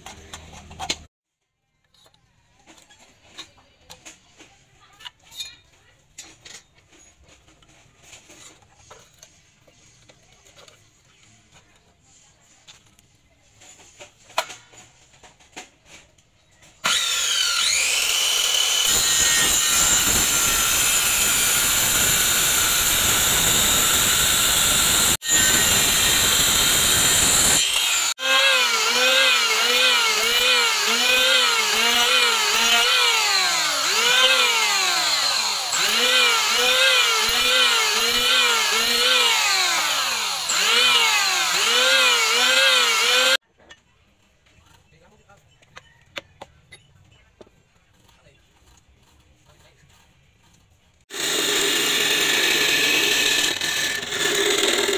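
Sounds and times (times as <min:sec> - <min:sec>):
electric power tool whining: 0:16.8 - 0:43.4, 0:51.1 - 0:54.9.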